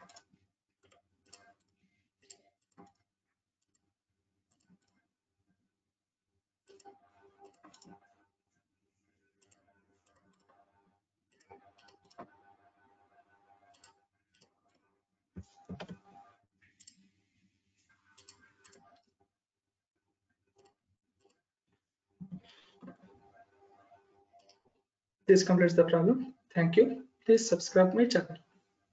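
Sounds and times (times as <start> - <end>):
computer mouse clicks: 7.6 - 8.0.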